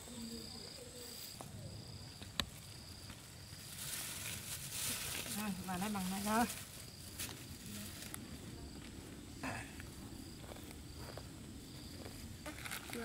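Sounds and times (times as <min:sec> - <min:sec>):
insects chirping: 0:00.0 - 0:13.0
plastic bag rustling: 0:03.5 - 0:08.3.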